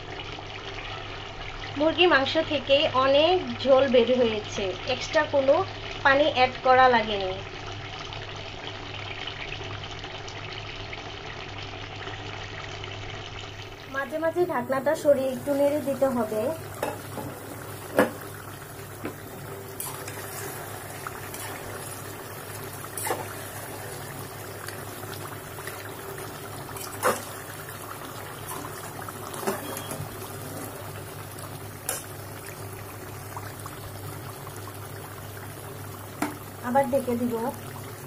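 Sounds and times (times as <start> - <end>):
curry bubbling in a pot: 0.0 - 38.0
spatula knocking on pot: 16.8 - 18.3
metal spatula stirring: 19.8 - 23.8.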